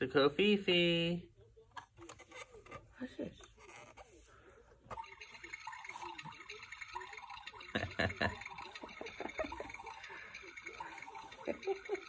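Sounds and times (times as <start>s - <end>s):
toy liquid pouring and dripping: 4.9s - 12.0s.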